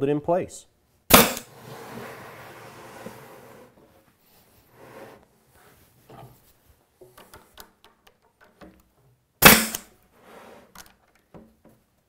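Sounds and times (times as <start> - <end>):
pneumatic stapler firing: 1.1 - 1.5, 9.4 - 9.9.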